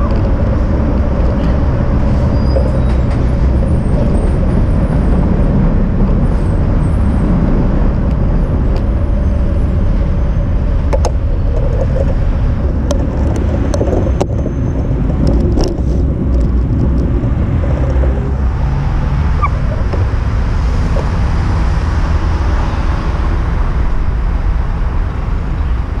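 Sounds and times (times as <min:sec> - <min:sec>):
road traffic passing: 0:00.0 - 0:26.0
wind rumbling on microphone: 0:00.0 - 0:26.0
sharp clicks and rattles: 0:10.8 - 0:18.6.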